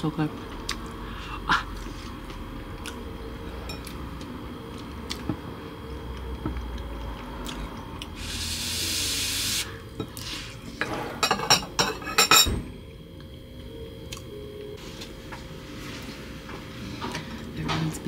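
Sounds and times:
steady hiss: 8.1s - 9.8s.

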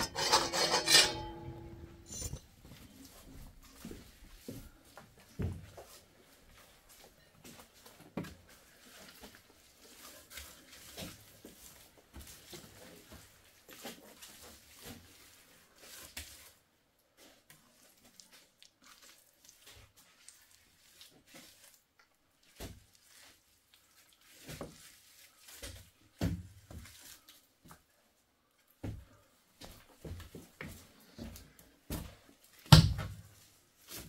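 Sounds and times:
trowel scraping wet plaster: 0.0s - 2.4s.

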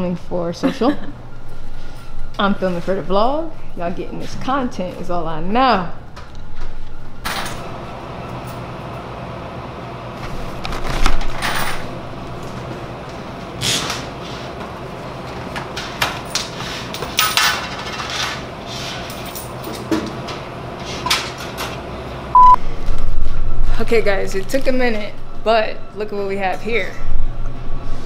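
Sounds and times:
low steady hum: 22.3s - 28.0s
short beep: 22.4s - 22.6s.

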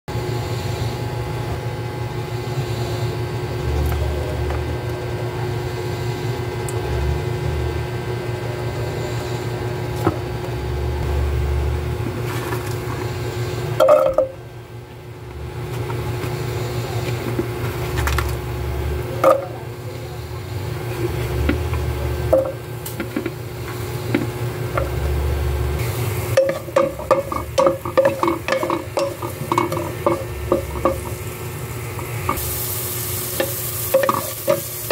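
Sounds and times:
steady low hum: 0.1s - 34.9s
onions frying in oil: 20.6s - 34.9s
wooden spatula tapping pan: 26.4s - 31.2s.

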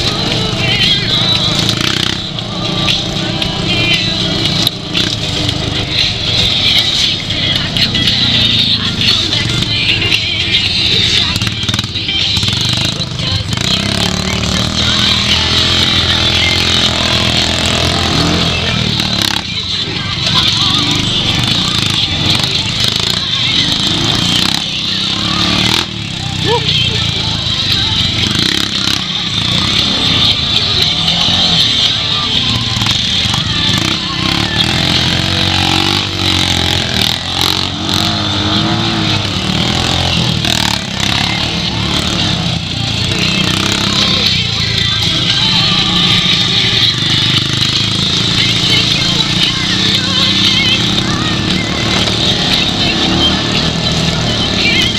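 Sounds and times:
music with singing voice: 0.0s - 54.9s
utility vehicle engine running: 0.0s - 54.9s.

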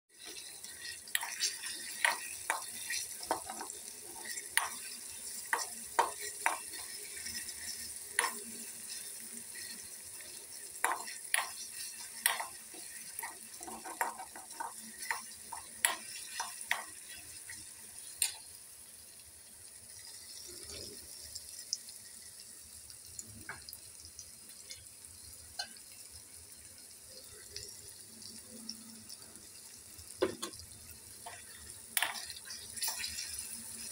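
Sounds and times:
oil sizzling: 0.1s - 33.9s
spoon scraping a metal pan: 0.2s - 9.9s, 10.8s - 17.1s.

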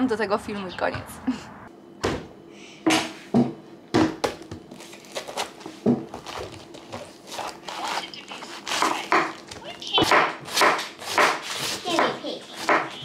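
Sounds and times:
cabbage leaves crinkling: 4.7s - 10.0s.

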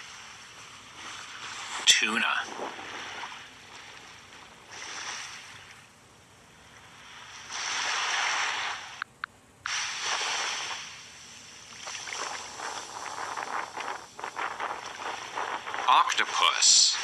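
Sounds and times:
ocean waves washing: 0.0s - 9.0s, 9.6s - 17.0s.

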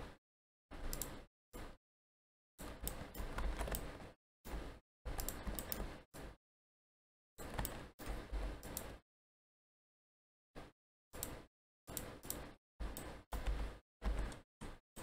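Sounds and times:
computer mouse clicks: 0.8s - 1.2s, 2.6s - 3.9s, 5.1s - 6.0s, 7.4s - 9.0s, 11.2s - 14.8s.

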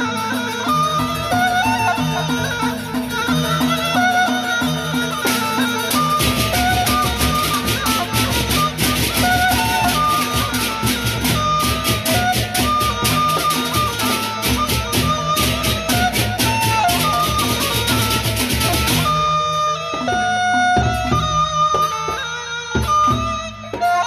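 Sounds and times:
hand cymbals clashing: 0.0s - 23.1s
high wavering melody: 0.0s - 24.0s
large barrel drums beating: 0.7s - 19.2s, 19.8s - 24.0s.

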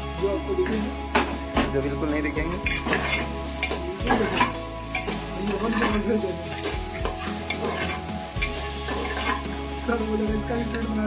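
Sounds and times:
vegetables sizzling: 0.0s - 11.0s
metal ladle scraping pot: 2.5s - 9.7s.

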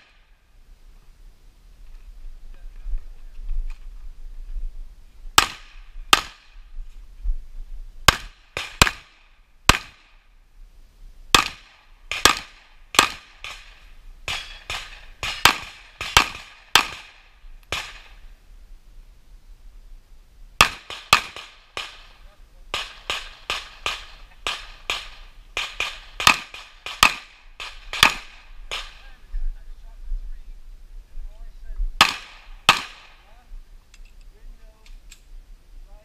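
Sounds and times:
handgun shots with echo: 22.7s - 29.0s, 32.0s - 33.2s.

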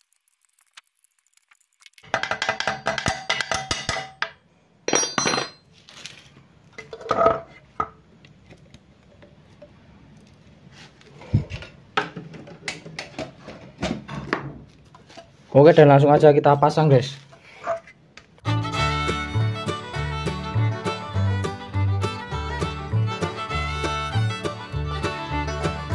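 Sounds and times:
metallic clinks and knocks: 2.0s - 5.7s.

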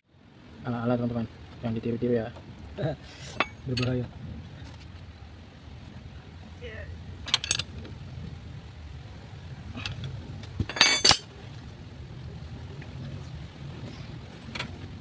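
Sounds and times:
hand tools clanking on metal: 3.3s - 4.1s, 7.3s - 7.7s, 9.8s - 11.3s
loud ringing metal clank: 10.7s - 11.3s.

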